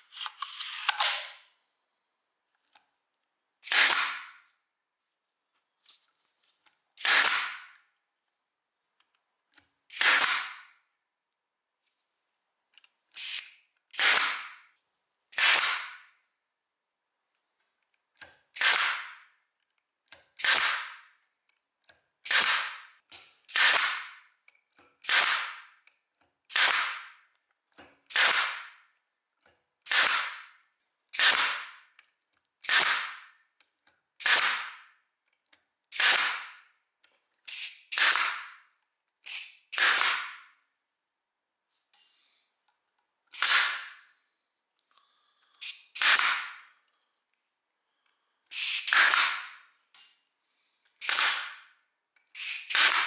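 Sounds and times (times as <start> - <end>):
pneumatic stapler firing: 0.2 - 1.4, 3.6 - 4.4, 7.0 - 7.8, 9.9 - 10.7, 13.2 - 14.6, 15.3 - 16.1, 18.2 - 19.2, 20.2 - 21.0, 22.2 - 24.2, 25.0 - 25.8, 26.5 - 27.2, 28.1 - 28.8, 29.8 - 30.5, 31.1 - 31.8, 32.6 - 33.4, 34.2 - 34.9, 35.9 - 36.6, 37.5 - 38.6, 39.2 - 40.5, 43.3 - 44.0, 45.6 - 46.6, 48.5 - 49.6, 51.0 - 51.7, 52.3 - 53.0.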